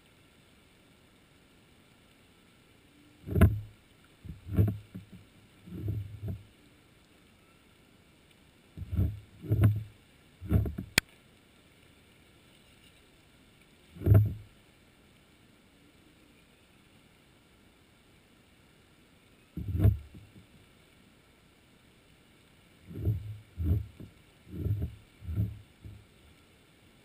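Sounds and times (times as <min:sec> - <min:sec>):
low dull underwater thumps: 0:03.2 - 0:06.5, 0:08.8 - 0:11.0, 0:14.0 - 0:14.5, 0:19.6 - 0:20.5, 0:22.9 - 0:26.1.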